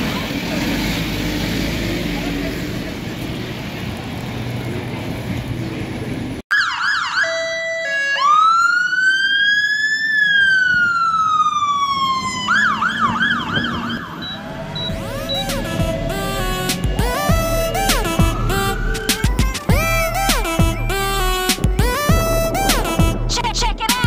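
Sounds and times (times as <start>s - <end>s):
street traffic rumble: 0.0s - 6.4s, 8.4s - 24.0s
fire engine siren: 6.5s - 23.1s.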